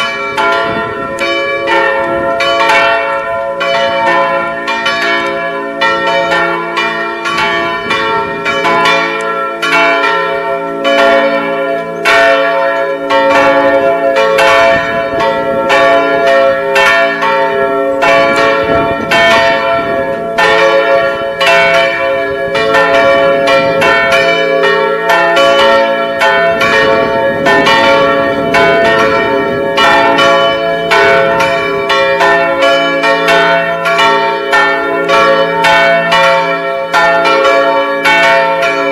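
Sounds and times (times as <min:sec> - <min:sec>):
church bells ringing: 0:00.0 - 0:38.9.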